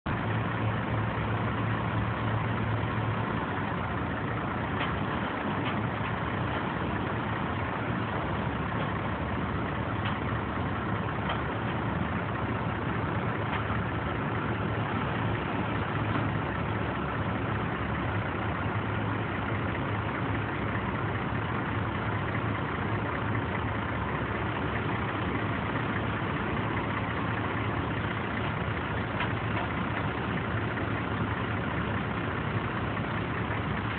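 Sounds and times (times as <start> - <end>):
diesel truck engine running: 0.0 - 33.9.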